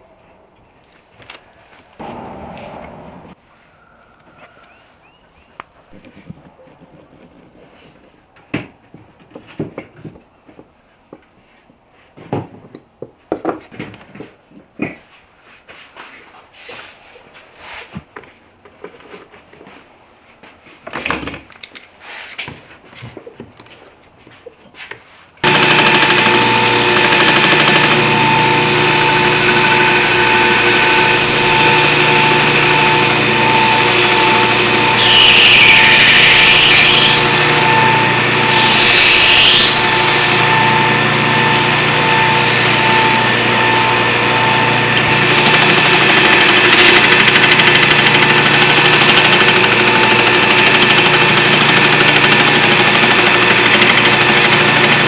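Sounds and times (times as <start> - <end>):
electric bench power tool running: 25.4 - 55.0.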